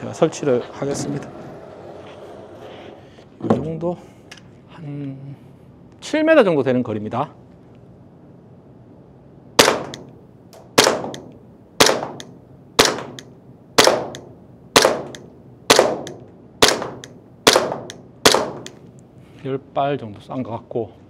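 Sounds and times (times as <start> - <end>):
airsoft pistol shots: 9.6 - 10.1, 10.7 - 18.8.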